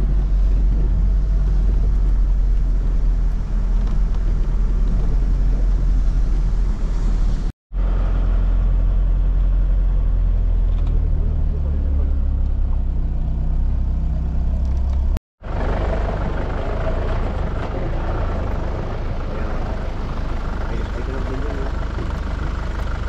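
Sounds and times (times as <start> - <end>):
boat engine running: 14.4 - 23.0.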